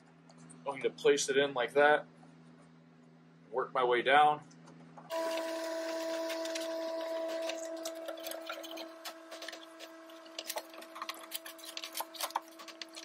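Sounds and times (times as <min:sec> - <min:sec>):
steady hum: 0:00.0 - 0:13.0
rubber seal squishing and rubbing: 0:05.1 - 0:13.0.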